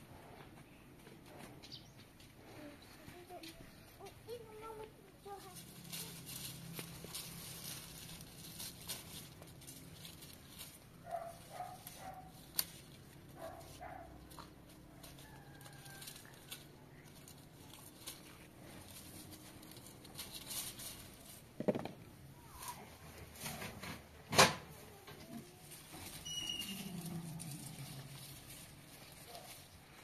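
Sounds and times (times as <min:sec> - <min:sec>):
branches rustling and clicking: 0:04.0 - 0:21.6, 0:22.4 - 0:30.0
animal calls: 0:26.2 - 0:28.2.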